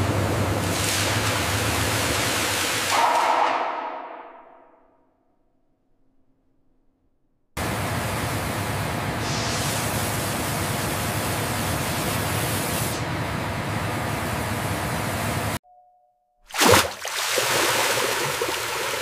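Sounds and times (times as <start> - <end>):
heavy rushing water: 16.6 - 19.0.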